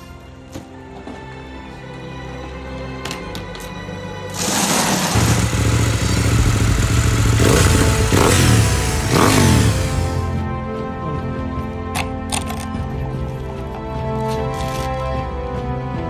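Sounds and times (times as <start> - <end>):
motorcycle engine revving: 4.4 - 10.4.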